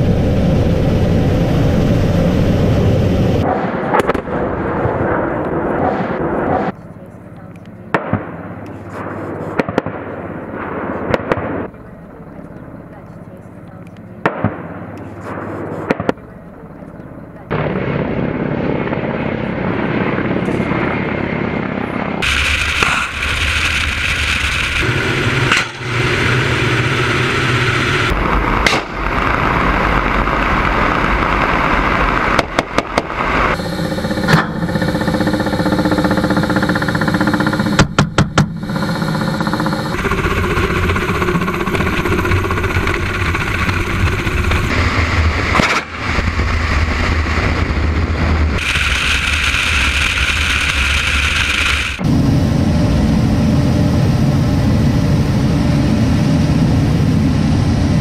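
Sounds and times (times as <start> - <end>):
cockpit whine: 0.0 - 58.0
helicopter rotors and engines: 0.0 - 58.0
cannon firing bursts: 7.9 - 12.4, 14.2 - 16.3, 17.5 - 52.0.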